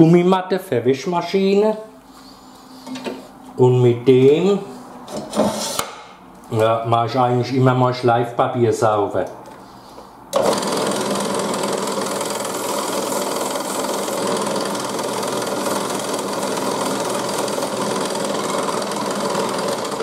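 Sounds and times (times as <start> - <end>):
drill press motor running: 10.3 - 20.0.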